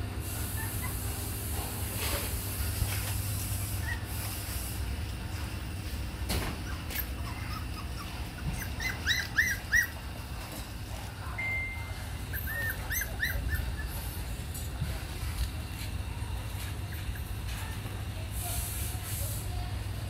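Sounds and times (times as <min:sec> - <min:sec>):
puppies whining: 0:00.4 - 0:01.2, 0:03.7 - 0:04.2, 0:06.3 - 0:10.4, 0:11.4 - 0:14.7, 0:16.2 - 0:17.8.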